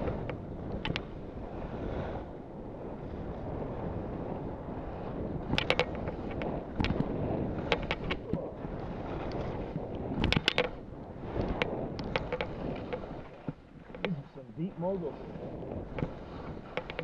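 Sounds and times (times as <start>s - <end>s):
wind rushing on microphone: 0.0s - 17.0s
skis clacking on bumps: 5.6s - 8.4s.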